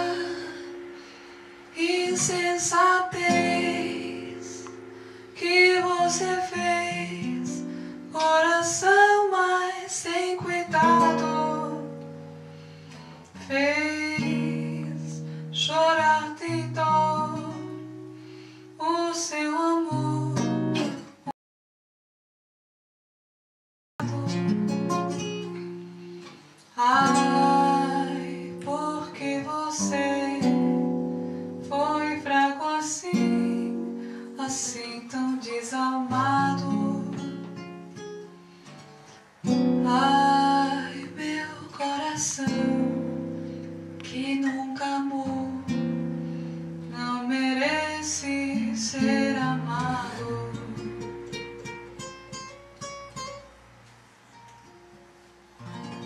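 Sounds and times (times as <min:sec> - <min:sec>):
woman singing: 0:00.0 - 0:01.0, 0:01.7 - 0:12.2, 0:13.4 - 0:18.0, 0:18.8 - 0:21.0, 0:24.0 - 0:25.6, 0:26.7 - 0:37.8, 0:39.4 - 0:46.0, 0:46.8 - 0:51.4
acoustic guitar chords: 0:00.0 - 0:21.3, 0:24.0 - 0:56.0.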